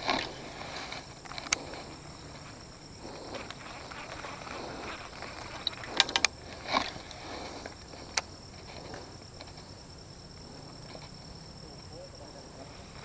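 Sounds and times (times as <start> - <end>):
sharp clicks: 0.0 - 1.9, 5.3 - 9.7
high-pitched insect drone: 0.0 - 13.0.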